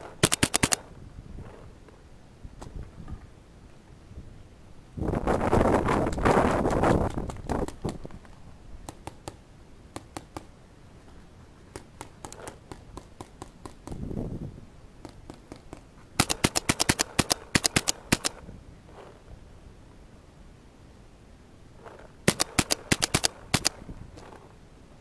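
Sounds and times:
paintball markers firing: 0.0s - 0.9s, 6.1s - 8.2s, 8.8s - 10.5s, 11.7s - 14.0s, 15.0s - 18.4s, 21.8s - 24.4s.

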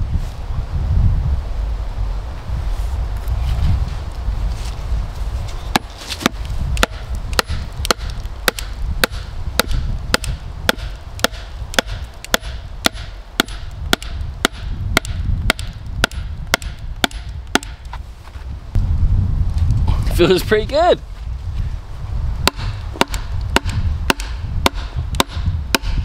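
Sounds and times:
wooden dowel hammered into wood: 5.8s - 17.8s, 22.4s - 26.0s.

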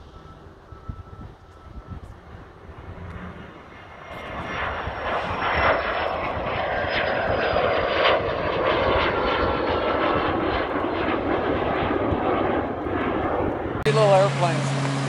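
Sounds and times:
high jet engine whine: 0.0s - 15.0s
jet engines roaring: 0.0s - 15.0s.

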